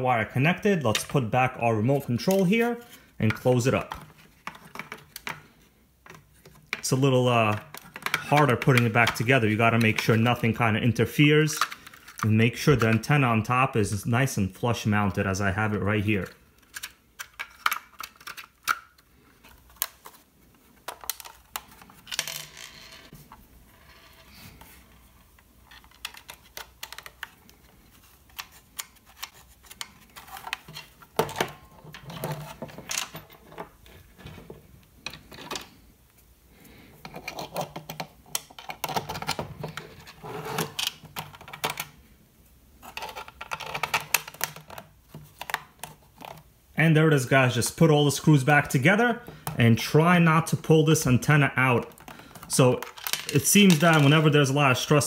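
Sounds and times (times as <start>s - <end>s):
plastic case clicks and rattles: 42.9s - 46.4s.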